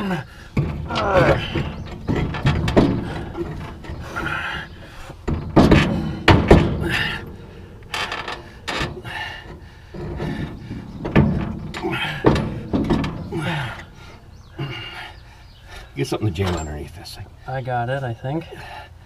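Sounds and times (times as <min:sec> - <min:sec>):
metal clunks and scraping: 0:00.0 - 0:17.2
loud knocks: 0:00.6 - 0:14.1.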